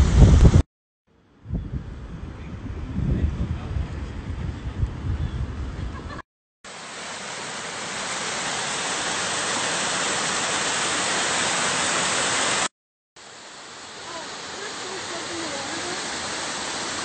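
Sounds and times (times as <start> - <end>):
wind rumble on microphone: 0.0 - 0.6, 1.4 - 6.2
small waterfall rushing over rocks: 6.7 - 17.0.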